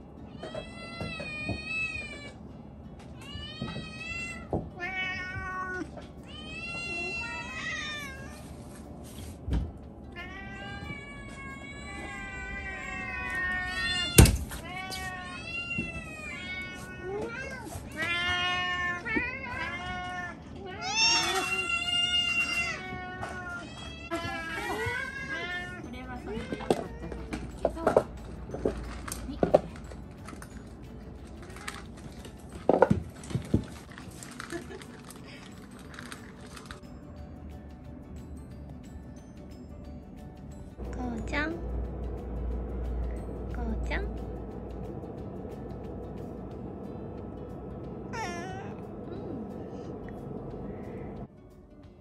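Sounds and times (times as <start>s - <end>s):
cats meowing: 0.2s - 2.4s, 3.2s - 8.6s, 10.1s - 27.6s, 48.1s - 49.6s.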